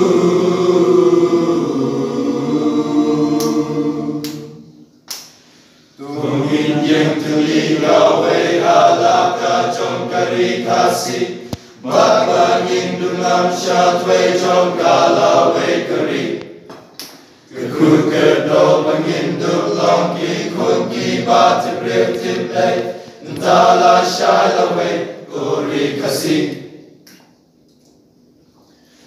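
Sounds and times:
male choir singing unaccompanied: 0:00.0 - 0:04.7, 0:06.0 - 0:16.4, 0:17.5 - 0:26.8.

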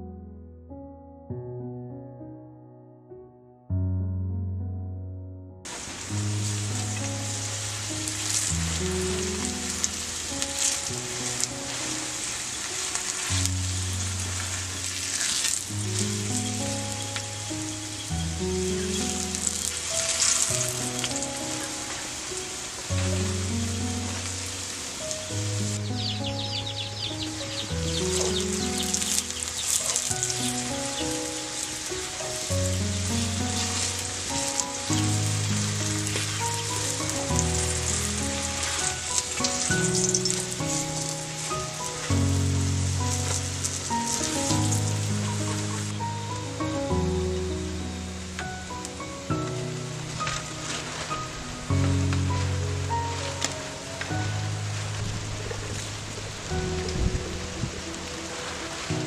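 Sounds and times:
background music: 0:05.6 - 0:59.0
oil sizzling in a pan: 0:05.7 - 0:25.9, 0:27.0 - 0:46.0.

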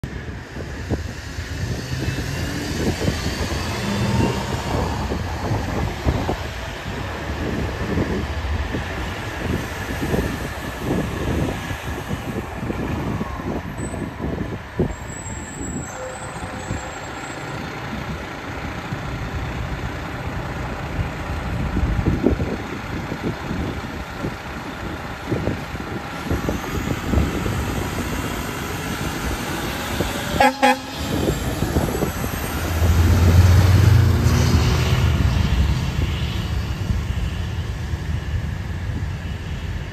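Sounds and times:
truck diesel engine passing: 0:00.0 - 0:39.9
truck horn toot: 0:30.3 - 0:31.4.

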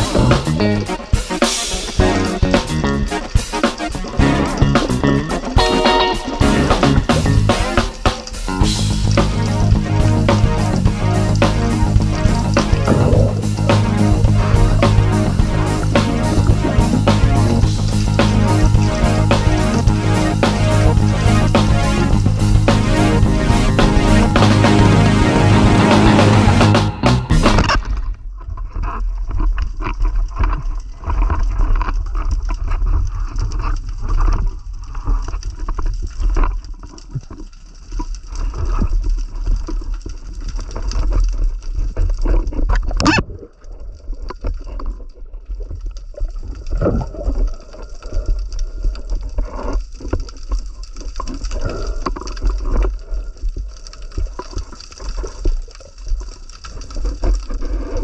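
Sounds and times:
muffled underwater water wash: 0:00.0 - 0:26.8, 0:32.4 - 0:58.0
heavy low rumble: 0:00.0 - 0:27.7.

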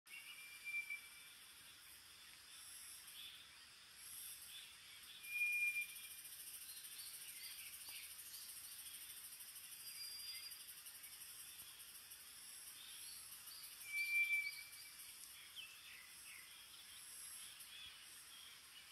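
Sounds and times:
high pulsing insect trill: 0:00.1 - 0:18.9
soft bird chirps: 0:00.1 - 0:18.9
steady whistles: 0:05.2 - 0:06.2, 0:13.8 - 0:14.9.

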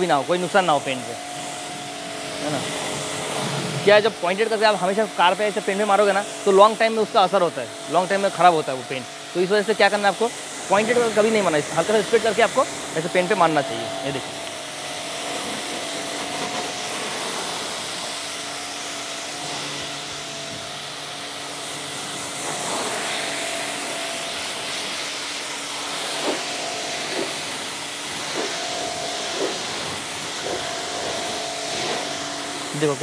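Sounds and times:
pressure washer motor humming: 0:00.0 - 0:33.0
water jet hissing on car: 0:00.0 - 0:33.0.

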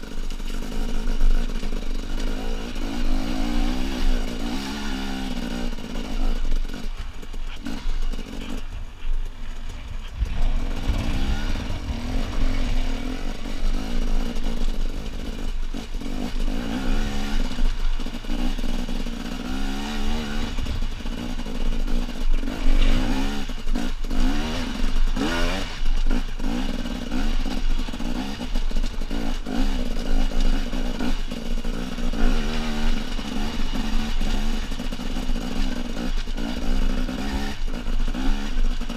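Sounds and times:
motorcycle engine under load: 0:00.0 - 0:38.9.

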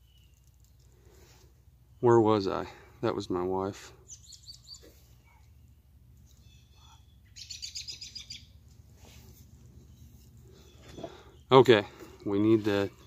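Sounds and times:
small bird chirping: 0:00.0 - 0:00.9, 0:04.0 - 0:11.6.

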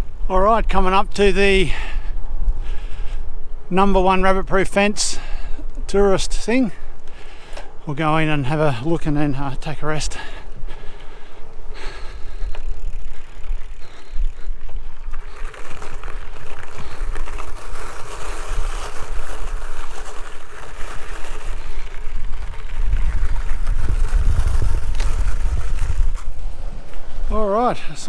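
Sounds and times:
wind buffeting microphone: 0:00.0 - 0:28.0
tyres rolling on gravel: 0:03.8 - 0:28.0.

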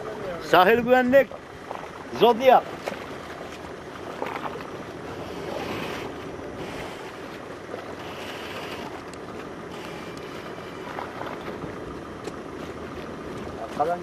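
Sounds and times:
boat engines and wake rushing: 0:00.0 - 0:14.0
sea wash: 0:00.0 - 0:14.0.

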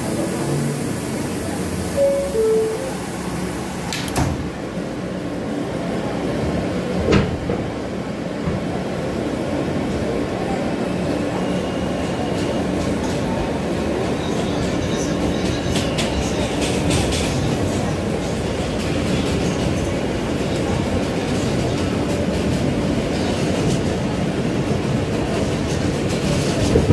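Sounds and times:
subway train running: 0:00.0 - 0:26.9
sharp clicks of train: 0:03.9 - 0:04.5, 0:14.7 - 0:26.9.

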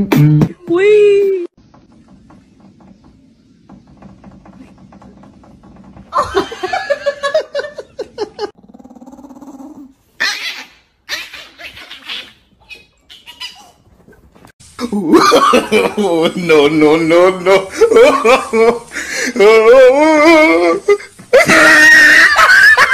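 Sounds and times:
dog growling: 0:08.6 - 0:10.1.

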